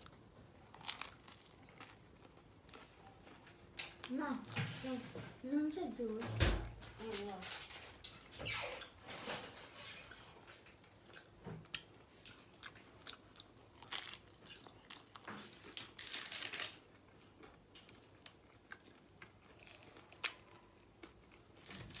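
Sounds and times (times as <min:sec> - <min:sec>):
person chewing crispy pizza: 0:00.0 - 0:04.6, 0:10.6 - 0:22.0.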